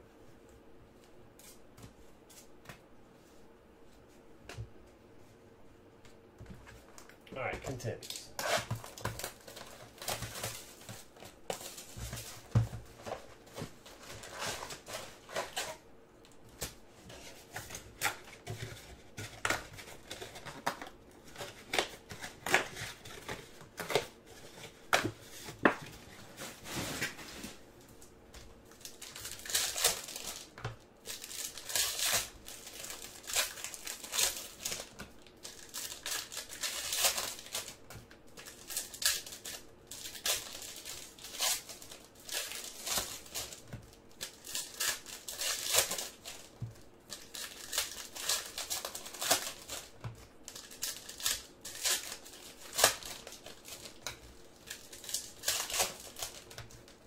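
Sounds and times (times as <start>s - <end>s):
wrappers crinkling and tearing: 6.9s - 15.8s, 28.4s - 57.0s.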